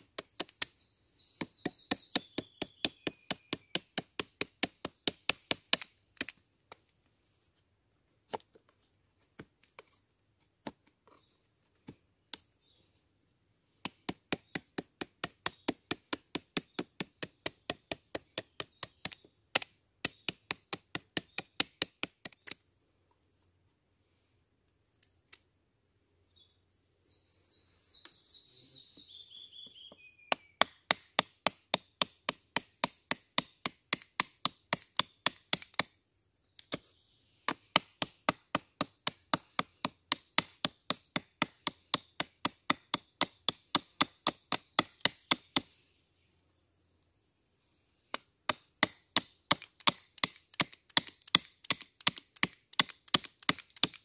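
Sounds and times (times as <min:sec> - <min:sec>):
blade chopping into wood: 0:01.4 - 0:06.4, 0:13.8 - 0:22.6, 0:30.3 - 0:35.9, 0:37.5 - 0:45.6, 0:48.1 - 0:54.0.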